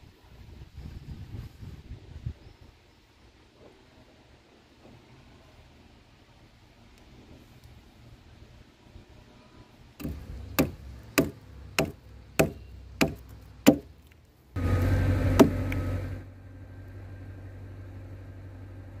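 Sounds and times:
hatchet chopping into log: 10.0s - 13.9s, 15.4s - 15.6s.

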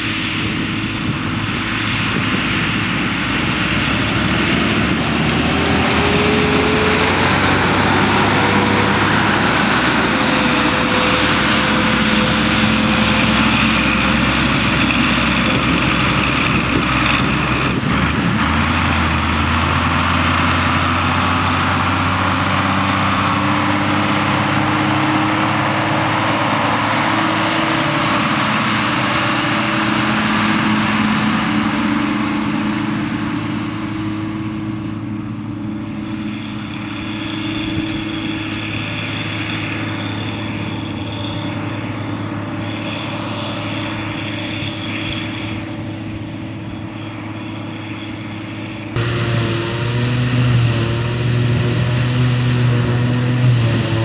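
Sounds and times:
tractor diesel engine running: 0.0s - 54.0s
forage harvester chopping grass: 2.2s - 41.5s, 49.0s - 54.0s.

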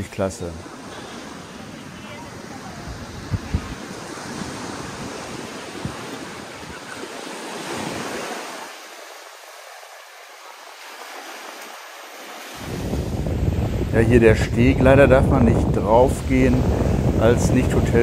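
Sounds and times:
sea waves washing onto beach: 0.0s - 18.0s
wind buffeting microphone: 0.9s - 8.2s, 12.6s - 18.0s.

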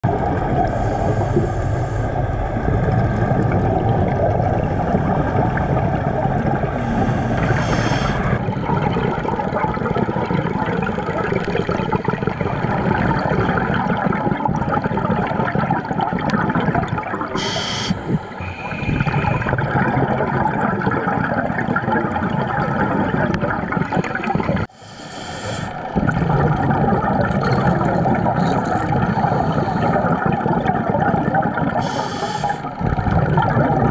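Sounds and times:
underwater regulator bubbles gurgling: 0.0s - 33.9s
short bursts of hiss: 17.4s - 19.0s.

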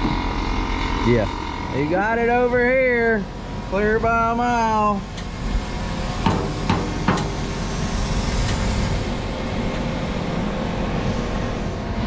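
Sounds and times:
mechanical running noise: 0.0s - 12.0s
sharp knocks: 6.2s - 7.5s.

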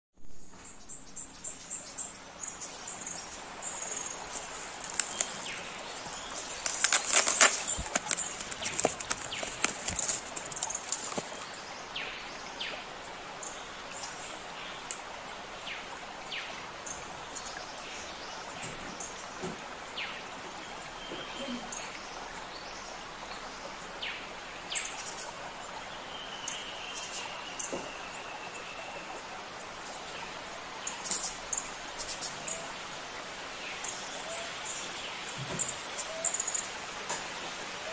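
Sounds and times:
outdoor background hiss: 0.2s - 37.9s
handling clicks and rustles: 3.9s - 11.5s.

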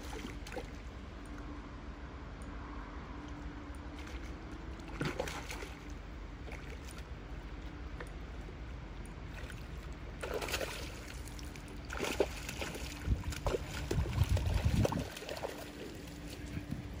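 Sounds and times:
fish splashing in water: 0.0s - 0.9s, 3.9s - 8.2s, 9.2s - 16.5s
landing net scooping water: 0.0s - 1.5s, 3.7s - 17.0s.

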